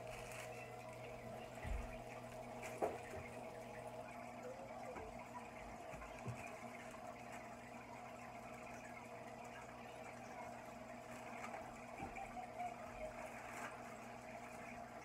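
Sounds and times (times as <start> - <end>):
low electrical hum: 0.0 - 15.0
water bubbling and trickling: 0.8 - 13.2.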